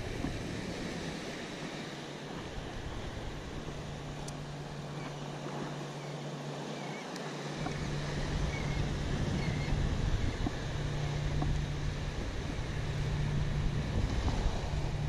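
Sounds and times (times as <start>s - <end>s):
wind buffeting microphone: 0.0s - 6.2s, 7.4s - 15.0s
small surf washing onto beach: 0.0s - 15.0s.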